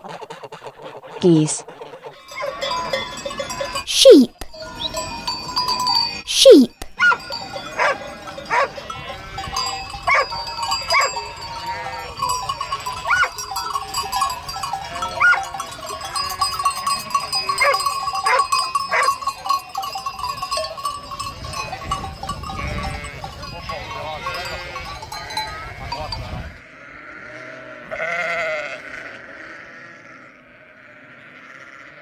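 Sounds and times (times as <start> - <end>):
sheep bleating: 11.0 - 12.3, 22.6 - 26.0, 26.6 - 32.0.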